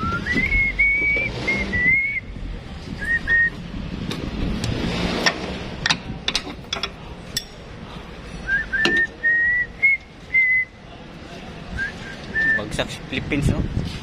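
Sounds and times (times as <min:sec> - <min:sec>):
person whistling high notes: 0:00.0 - 0:02.3, 0:08.5 - 0:10.8
sharp clinks and knocks: 0:05.2 - 0:09.2.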